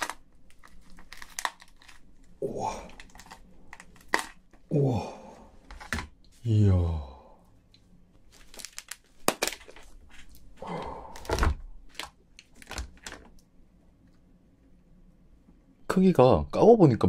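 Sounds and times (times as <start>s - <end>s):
crayfish shell cracking: 0.0s - 4.7s, 8.3s - 13.4s
crinkling: 0.0s - 4.7s, 7.7s - 13.4s.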